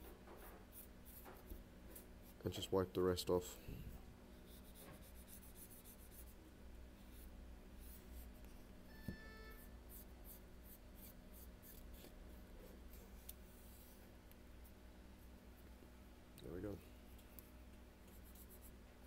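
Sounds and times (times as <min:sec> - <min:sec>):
faint tone: 0:08.8 - 0:09.8.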